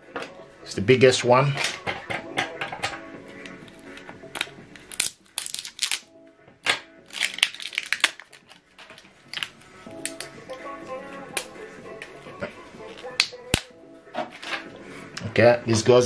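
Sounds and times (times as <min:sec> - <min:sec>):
soft background music: 0:00.0 - 0:16.0
plastic crinkling: 0:04.4 - 0:06.0, 0:07.1 - 0:10.3
plastic clicks and snaps: 0:06.6 - 0:10.3.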